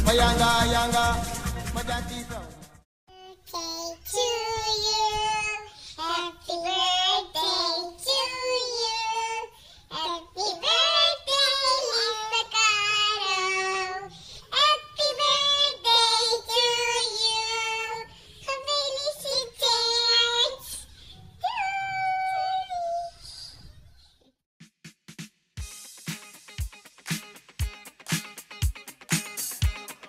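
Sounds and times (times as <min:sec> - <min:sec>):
child singing: 0:03.1 - 0:23.1.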